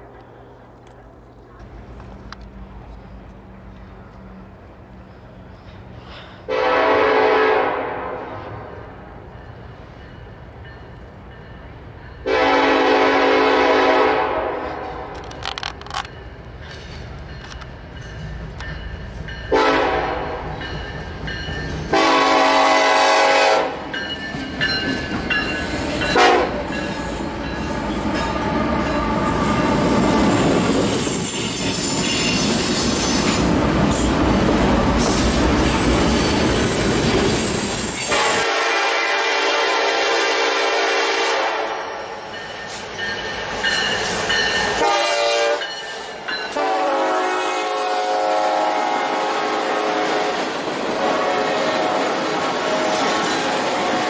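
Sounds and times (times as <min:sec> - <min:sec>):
freight train rolling on rails: 0:00.0 - 0:54.0
locomotive air horn blasts: 0:06.5 - 0:08.8, 0:12.2 - 0:15.2, 0:19.5 - 0:20.5, 0:21.9 - 0:23.8, 0:26.2 - 0:26.6, 0:38.1 - 0:41.9, 0:44.8 - 0:45.6, 0:46.5 - 0:50.4, 0:51.0 - 0:53.1.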